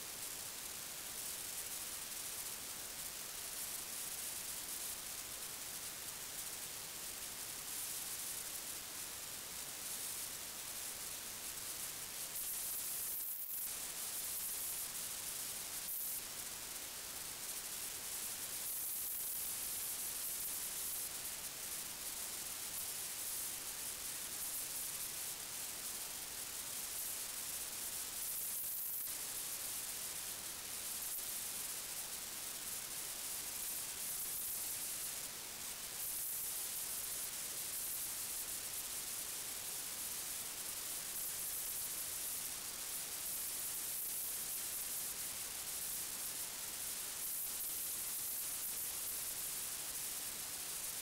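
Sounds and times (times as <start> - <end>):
steady electronic hiss: 0.0 - 51.0.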